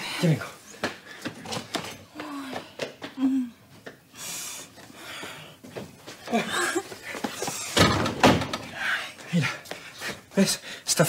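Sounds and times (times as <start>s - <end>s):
woman humming: 3.2s - 3.6s
woman sighing: 3.2s - 3.6s.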